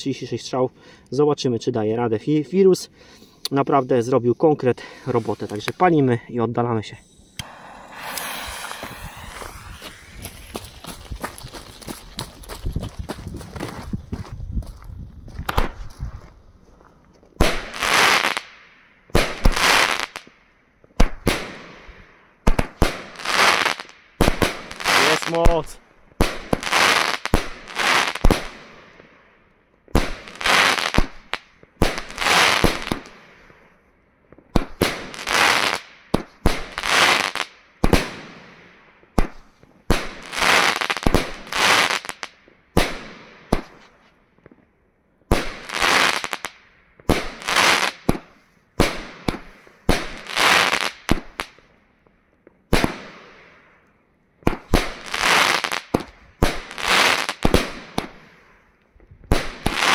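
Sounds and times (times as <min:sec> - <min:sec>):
firework cake firing: 0:07.2 - 0:12.2.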